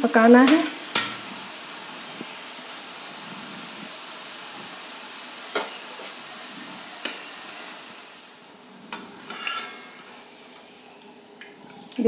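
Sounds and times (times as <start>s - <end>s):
frying in oil sizzling: 0.0s - 12.0s
metal spoon clinking on pan: 9.0s - 10.0s.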